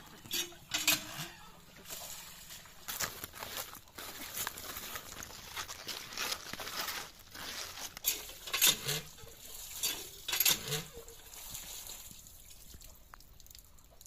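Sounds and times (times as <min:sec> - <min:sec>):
water trickling: 0:00.0 - 0:14.0
water splashing into colander: 0:08.0 - 0:14.0.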